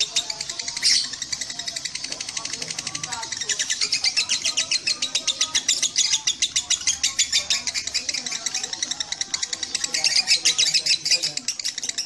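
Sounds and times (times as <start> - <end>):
lovebird chattering rapid chirps: 0.0 - 12.0.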